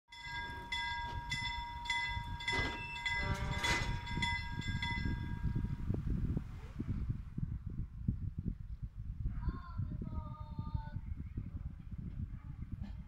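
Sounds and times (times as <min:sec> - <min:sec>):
level-crossing bells ringing: 0:00.1 - 0:05.6
train rumbling: 0:00.1 - 0:07.0.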